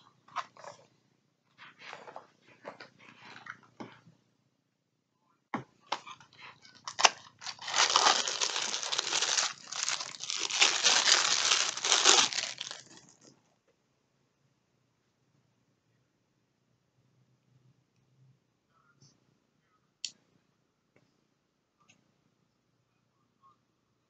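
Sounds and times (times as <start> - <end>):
plastic packaging crinkling: 6.8 - 13.3.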